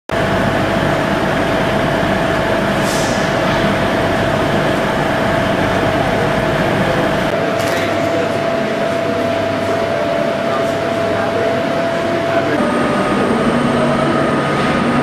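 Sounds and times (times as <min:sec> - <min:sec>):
train equipment droning and whining: 0:00.1 - 0:15.0
air hiss: 0:02.8 - 0:03.5.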